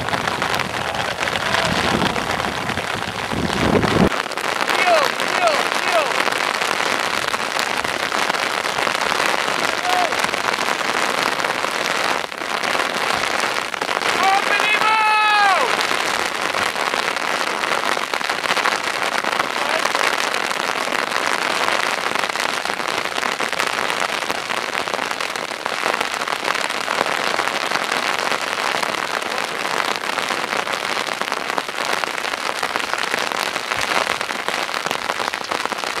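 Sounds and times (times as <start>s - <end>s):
heavy rain: 0.0s - 36.0s.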